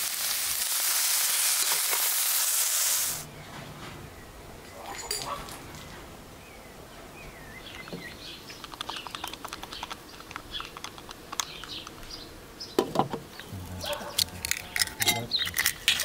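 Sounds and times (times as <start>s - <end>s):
small birds chirping: 3.2s - 15.9s.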